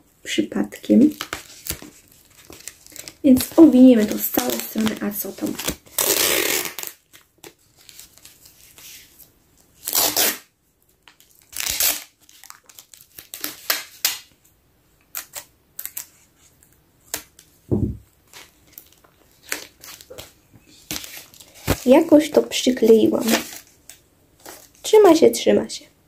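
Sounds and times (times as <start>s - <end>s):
paper rustling: 1.0s - 9.3s, 15.2s - 24.9s
dull thump: 17.7s - 18.0s.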